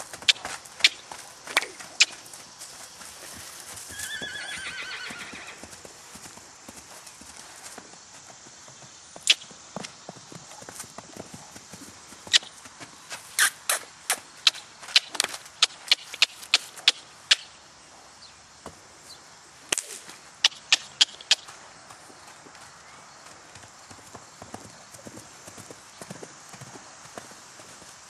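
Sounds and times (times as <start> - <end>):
horse hoofbeats clicking: 0.0 - 12.9.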